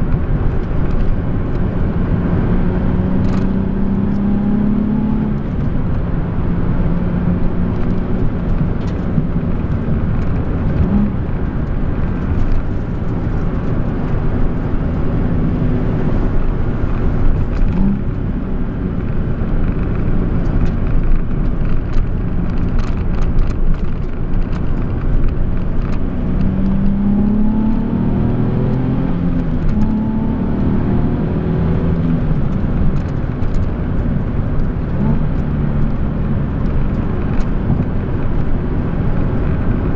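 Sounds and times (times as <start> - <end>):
car engine accelerating: 0.0 - 39.9
tyre and road noise: 0.0 - 39.9.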